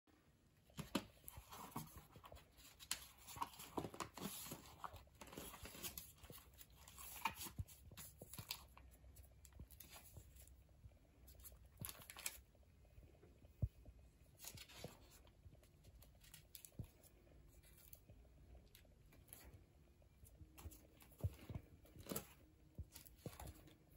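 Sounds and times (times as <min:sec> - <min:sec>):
pages turning and rustling: 0:00.6 - 0:10.6, 0:11.3 - 0:12.5, 0:14.3 - 0:18.1, 0:20.3 - 0:23.9.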